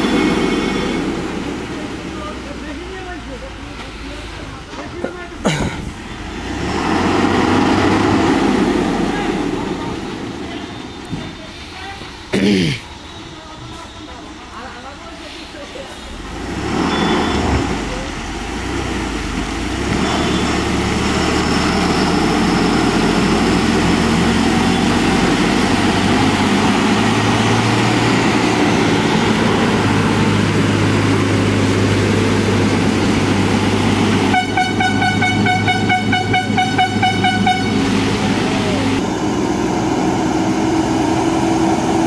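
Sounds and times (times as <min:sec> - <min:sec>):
lorry diesel engine labouring: 0:00.0 - 0:42.0
pulsing horn: 0:34.2 - 0:38.6.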